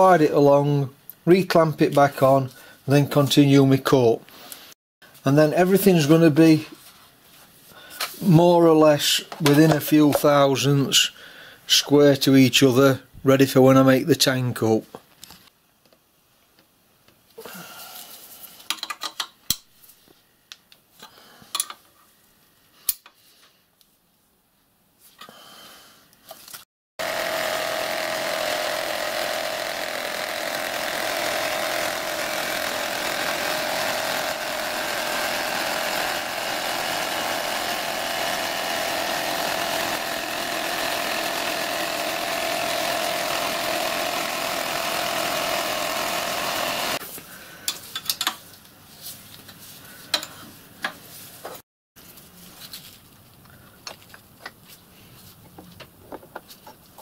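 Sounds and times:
clamps clicking and knocking: 18.7 - 19.6
milling machine cutting metal: 27.0 - 47.0.

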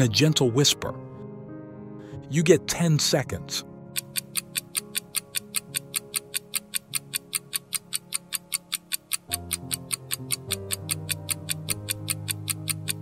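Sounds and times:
background music: 0.0 - 13.0
countdown timer ticking: 3.8 - 13.0.

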